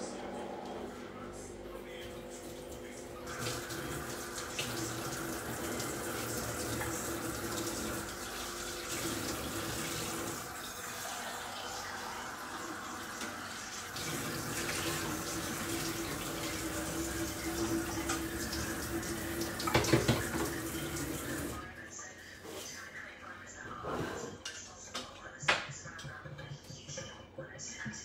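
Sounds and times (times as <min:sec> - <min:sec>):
tap running into sink: 0:13.1 - 0:21.5.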